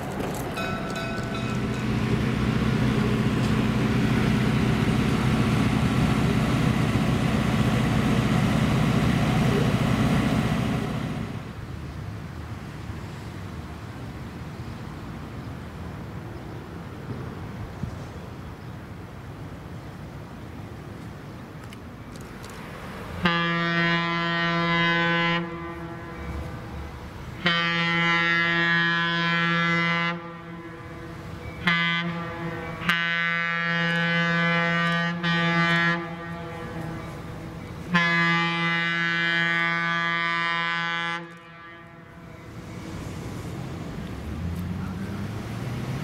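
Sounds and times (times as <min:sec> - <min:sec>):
locomotive air horn blasts: 0:23.2 - 0:26.7, 0:27.4 - 0:42.4.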